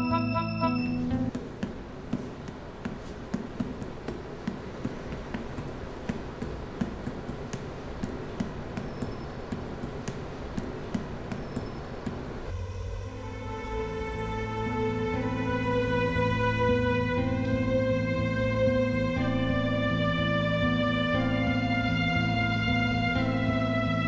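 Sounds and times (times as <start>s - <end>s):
steady background noise: 0.0s - 24.0s
sharp taps and clicks: 1.1s - 12.4s.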